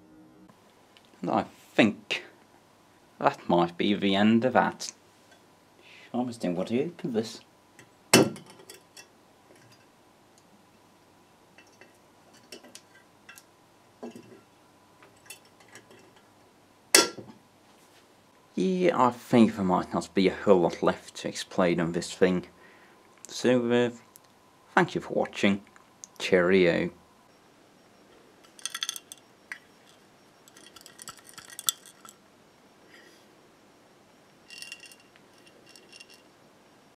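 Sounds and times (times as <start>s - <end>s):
glass jar clicks and clinks: 28.4s - 32.2s, 34.4s - 36.3s
wires scraping over glass: 29.8s - 32.2s.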